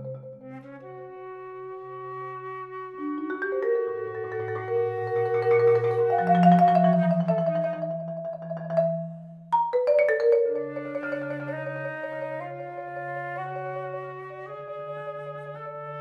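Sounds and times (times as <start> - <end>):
marimba: 0.0 - 0.8, 3.0 - 12.6
flute: 0.0 - 8.0, 10.7 - 16.0.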